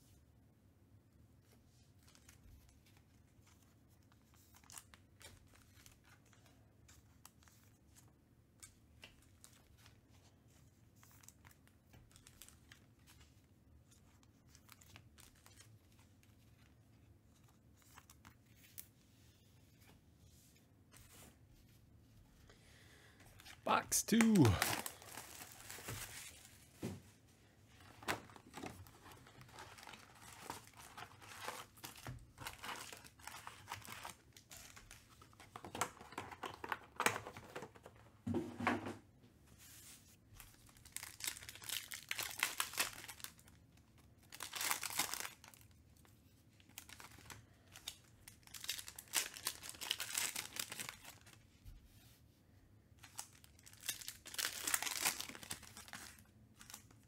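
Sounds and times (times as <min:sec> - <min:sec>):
shrink wrap crinkling and tearing: 0:11.0 - 0:13.2, 0:14.0 - 0:16.7, 0:23.4 - 0:26.6, 0:27.8 - 0:37.8, 0:40.4 - 0:51.4, 0:53.0 - 0:57.0
foil packs rustling and tearing: 0:24.2 - 0:26.6, 0:27.9 - 0:34.9, 0:40.7 - 0:43.6, 0:44.2 - 0:45.7, 0:46.8 - 0:51.4, 0:53.1 - 0:57.0.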